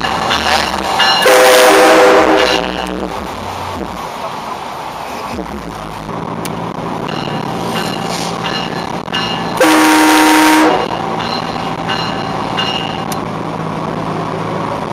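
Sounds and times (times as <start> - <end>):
car road and engine noise: 0.0 - 14.9
train horn blast: 1.2 - 2.9, 9.6 - 11.0.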